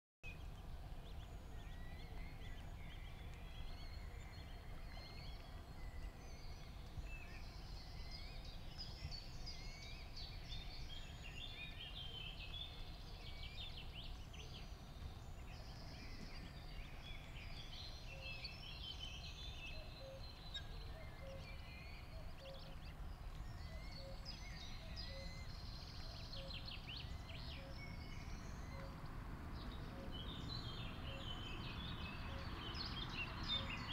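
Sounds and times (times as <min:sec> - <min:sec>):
birds chirping: 0:00.2 - 0:33.9
low outdoor rumble: 0:21.9 - 0:33.9.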